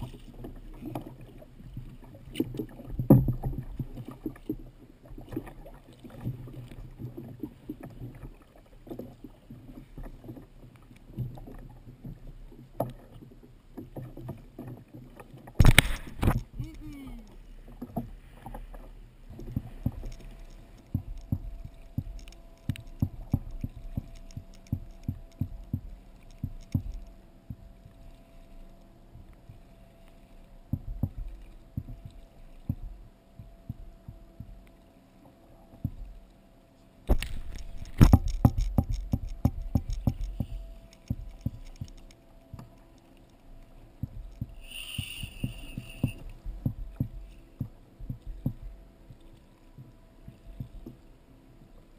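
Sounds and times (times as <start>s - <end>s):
kayak knocking and thumping: 0.0s - 4.6s, 11.1s - 16.8s, 19.3s - 28.0s, 30.7s - 34.6s, 37.0s - 42.8s, 44.0s - 51.0s
water slapping hull: 0.0s - 51.9s.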